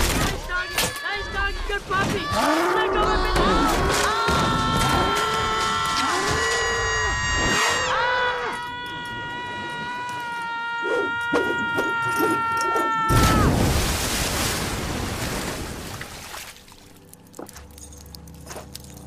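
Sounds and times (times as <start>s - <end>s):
boy screaming: 5.8s - 13.6s
big splash into pool: 13.1s - 16.5s.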